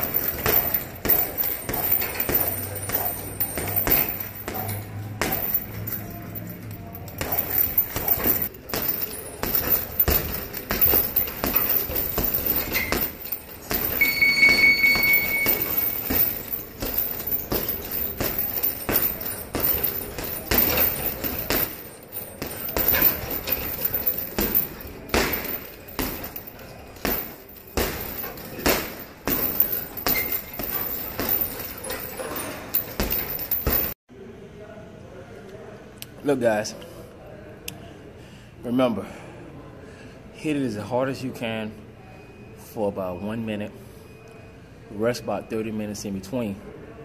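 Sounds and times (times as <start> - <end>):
chain clinking: 0.0 - 34.0
gloves punching heavy bag: 0.0 - 34.0.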